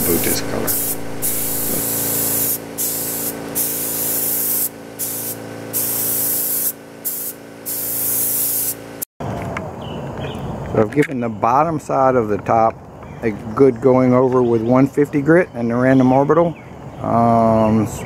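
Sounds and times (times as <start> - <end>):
steady low hum: 0.0 - 9.0
paint spray gun hissing: 0.0 - 9.1.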